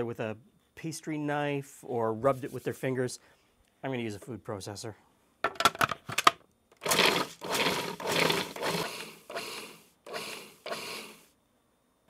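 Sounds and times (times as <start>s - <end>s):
food processor pulsing: 6.8s - 11.3s.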